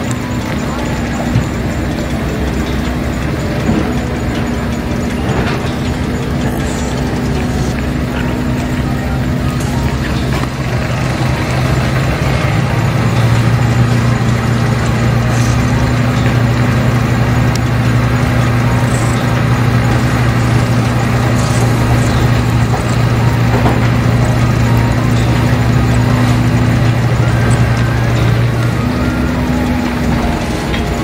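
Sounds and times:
engine idling hum: 0.0 - 31.0.

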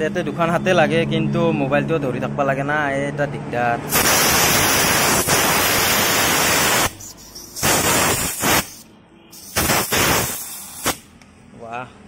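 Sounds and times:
compressed air hissing: 3.9 - 11.1.

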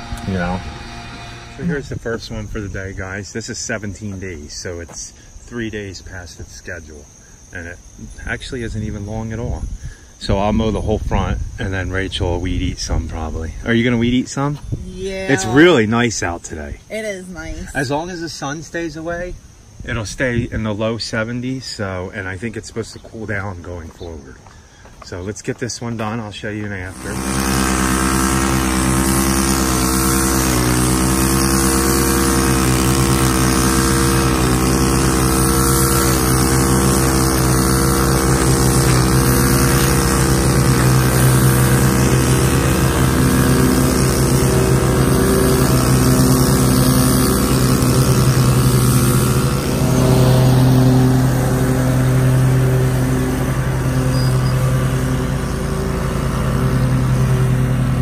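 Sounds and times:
string trimmer engine: 0.0 - 2.7, 15.1 - 15.8, 26.8 - 58.0
mower engine running: 0.0 - 5.0, 15.1 - 18.5, 26.5 - 58.0.

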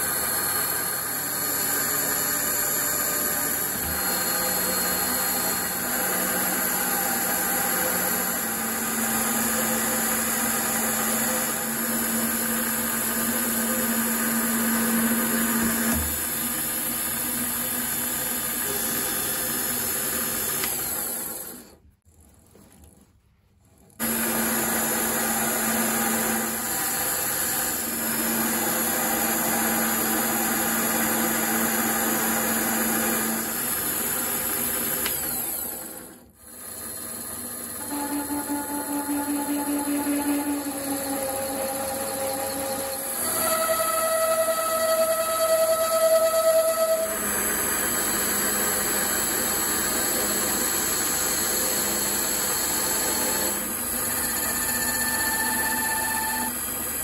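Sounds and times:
metal cutting noise: 0.0 - 21.6, 36.5 - 56.7
lathe motor whine: 0.0 - 21.8, 24.0 - 57.0.

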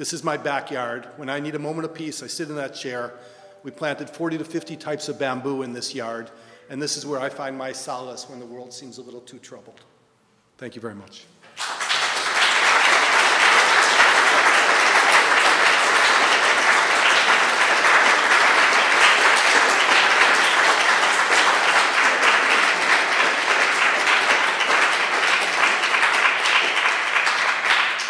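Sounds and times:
audience applauding: 11.5 - 28.0.

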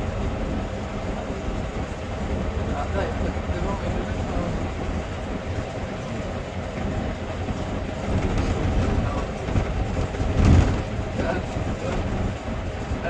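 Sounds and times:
vehicle rumbling and clattering: 0.0 - 13.0
loud bump: 8.2 - 11.0.

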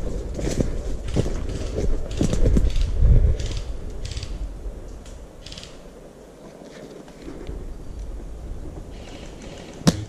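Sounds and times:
footsteps on dry forest litter: 0.0 - 2.8.

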